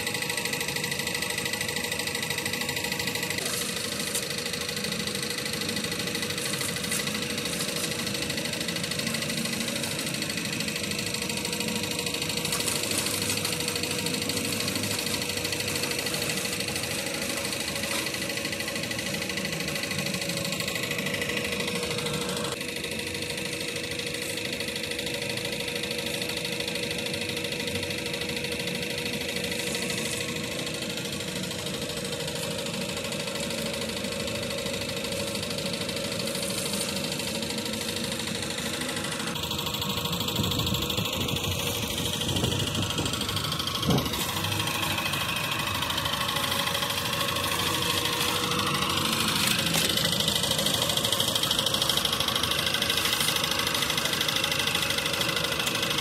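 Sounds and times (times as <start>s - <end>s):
engine idling: 0.0s - 56.0s.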